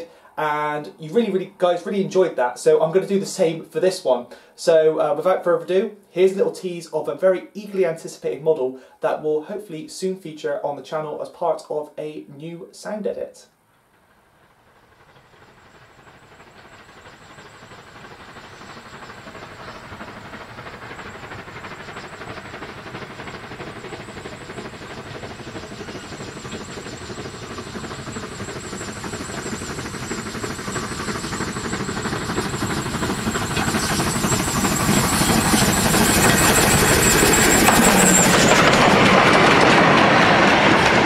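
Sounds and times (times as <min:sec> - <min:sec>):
steam locomotive working: 0:13.9 - 0:41.0.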